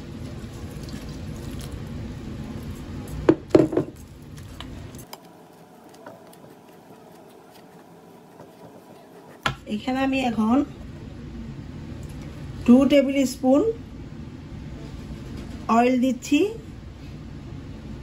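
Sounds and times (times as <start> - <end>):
water pouring into bowl: 0.0 - 2.0
spatula stirring wet flour: 4.4 - 9.7.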